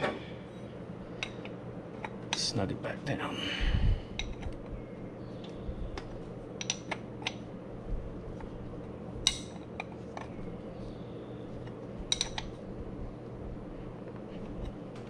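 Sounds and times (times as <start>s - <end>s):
low steady hum: 0.0s - 15.0s
wrench clinking on metal: 12.1s - 12.5s.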